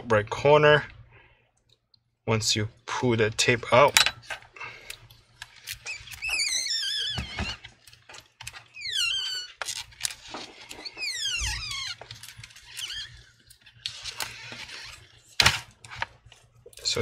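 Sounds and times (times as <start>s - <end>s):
adhesive tape squealing: 8.7s - 15.2s.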